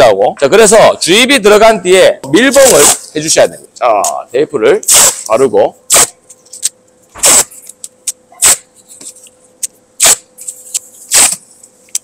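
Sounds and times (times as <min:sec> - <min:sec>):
masking tape ripping off roll: 0:02.6 - 0:03.1, 0:04.9 - 0:07.8, 0:08.4 - 0:08.7, 0:10.0 - 0:12.0.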